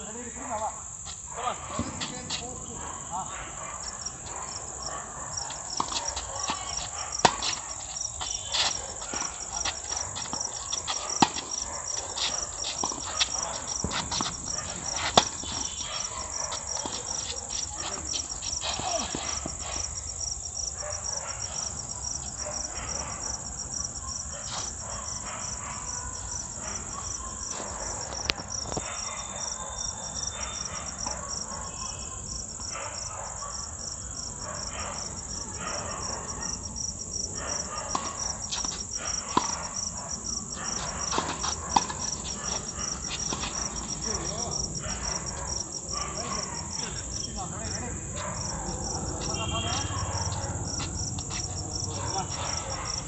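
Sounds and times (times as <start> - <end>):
night insects trilling: 0.0 - 53.0
tennis rackets hitting ball: 5.8 - 7.6, 8.5 - 11.6, 12.2 - 15.7.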